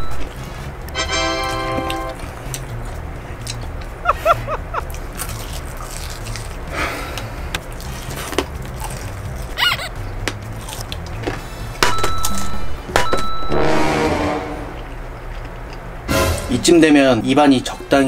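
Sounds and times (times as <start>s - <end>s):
quiet background music: 0.0s - 18.0s
crunching fried chicken: 1.5s - 11.6s.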